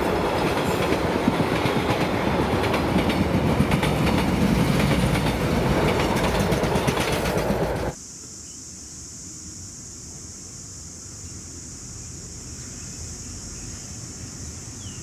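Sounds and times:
train wheels rumbling on rail: 0.0 - 8.0.

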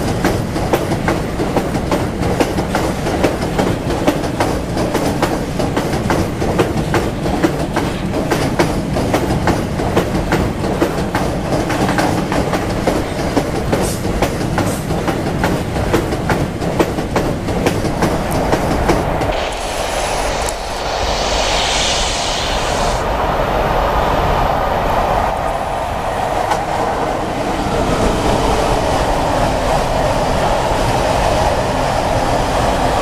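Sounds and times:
train wheels clicking over rail joints: 0.0 - 19.8
rumble of train wheels on rail: 0.0 - 33.0
brief hiss of passing train: 17.8 - 24.7.

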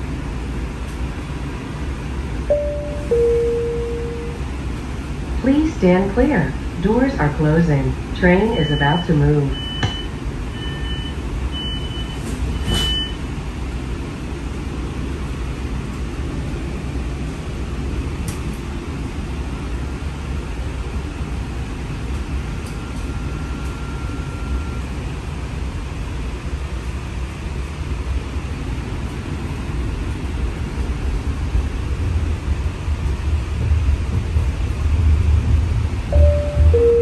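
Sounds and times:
streetcar rumbling: 0.0 - 37.0
door-closing warning beeps: 2.5 - 4.4, 8.5 - 13.2, 22.6 - 24.8, 36.1 - 37.0
faint steady tone: 2.5 - 4.4, 36.1 - 37.0.

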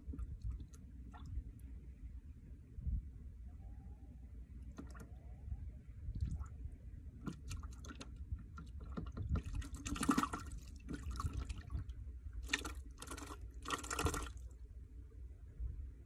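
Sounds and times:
steady low rumble: 0.0 - 13.6, 14.4 - 16.0
water splashing: 4.7 - 5.2, 7.2 - 14.5.

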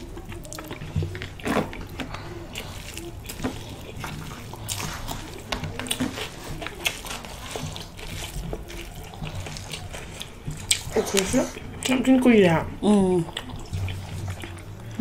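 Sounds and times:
wet chewing and lip smacks: 0.0 - 15.0
fingers squelching through rice: 2.1 - 11.9.

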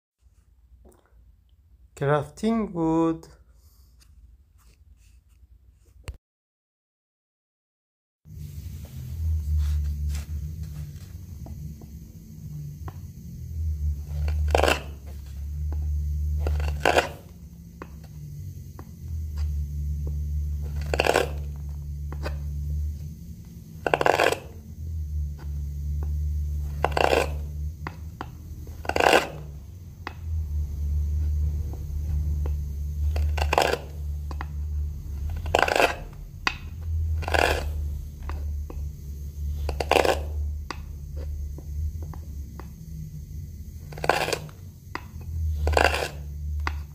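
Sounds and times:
low hum: 8.3 - 46.9
gouge carving wood: 9.2 - 42.9, 43.7 - 46.9.

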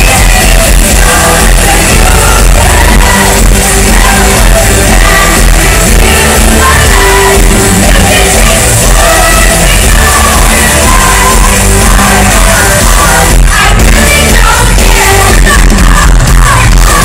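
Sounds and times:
live pop-rock band: 0.0 - 17.0
woman singing: 0.0 - 17.0.

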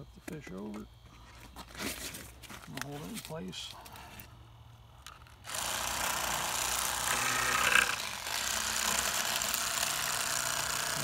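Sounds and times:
electric knife buzzing: 5.4 - 11.0.

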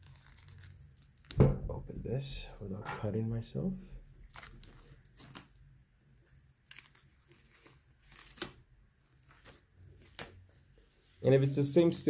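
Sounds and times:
shrink-wrap crackling and ripping: 0.0 - 2.0, 4.1 - 5.7, 6.3 - 10.5.

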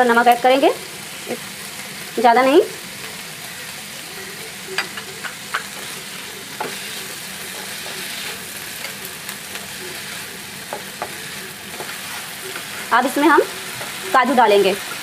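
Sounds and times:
vegetables sizzling in pan: 0.0 - 15.0
spatula tapping pan: 4.8 - 5.9, 6.5 - 9.0, 10.6 - 14.4.

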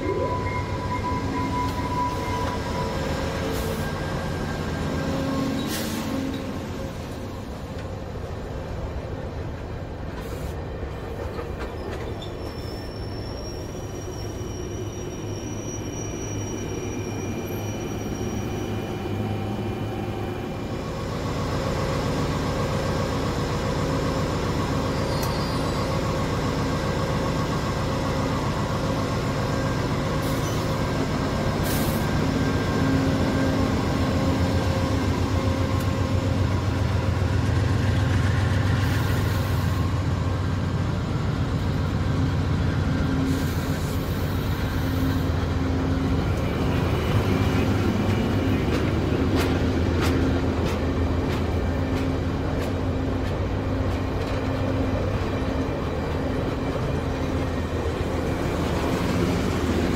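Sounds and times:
diesel locomotive engine drone: 0.0 - 59.9
train cars rolling on rails: 0.0 - 59.9
high wheel squeal: 0.1 - 6.5, 11.7 - 19.4, 24.9 - 26.1.

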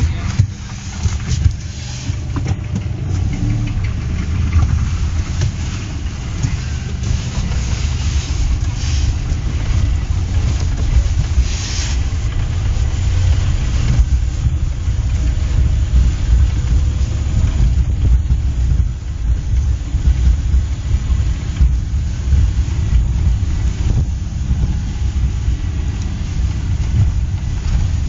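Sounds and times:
car engine and road rumble: 0.0 - 28.0
brief hiss: 5.2 - 12.2.

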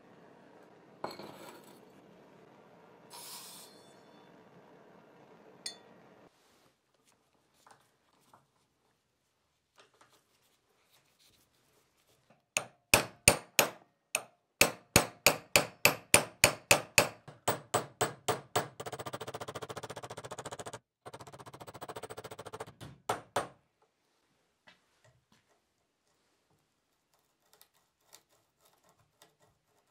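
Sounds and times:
hammer tapping on metal: 12.6 - 23.6
fast even rattle: 18.8 - 22.7.

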